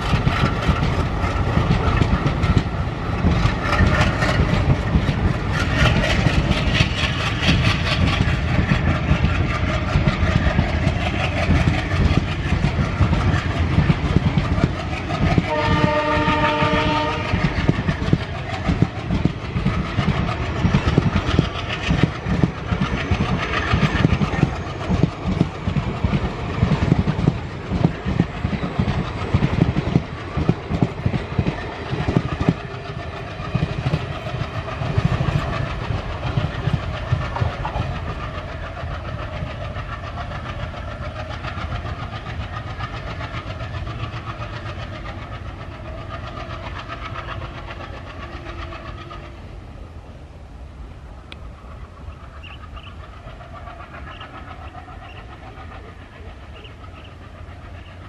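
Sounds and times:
train wheels clattering over joints: 0.0 - 49.4
locomotive horn: 15.5 - 17.5.

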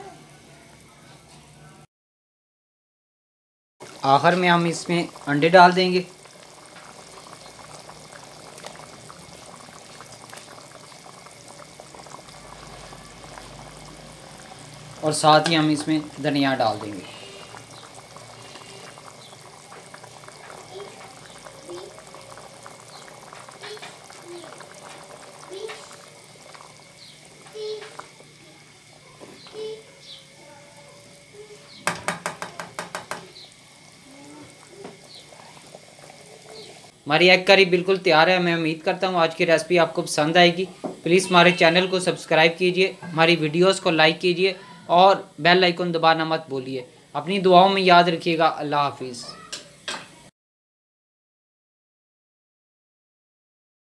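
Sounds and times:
faint stirring: 3.8 - 37.0
gravy bubbling in a wok: 3.8 - 50.3
spatula tapping cooking pot: 31.8 - 33.4.

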